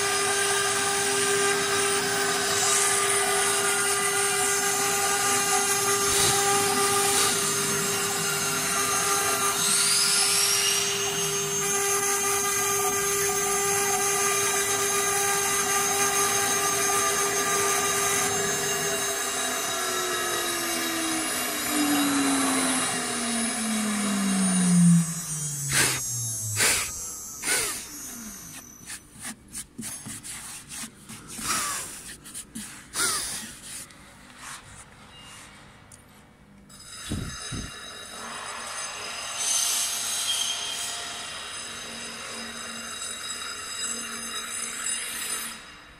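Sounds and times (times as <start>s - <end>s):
router spindle whining: 0.0s - 33.9s, 36.8s - 37.8s
knocks and rubbing: 28.5s - 33.9s.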